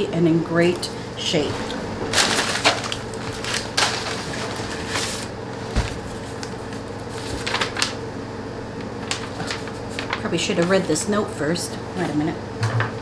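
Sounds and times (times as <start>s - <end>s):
paper rustling: 1.6s - 8.0s, 9.0s - 11.0s.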